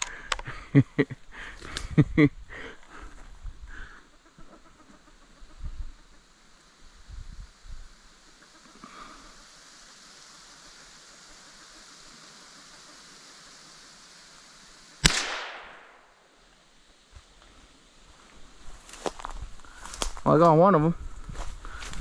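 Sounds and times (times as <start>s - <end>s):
faint steady hiss: 0.0s - 22.0s
rifle shot: 15.0s - 16.2s.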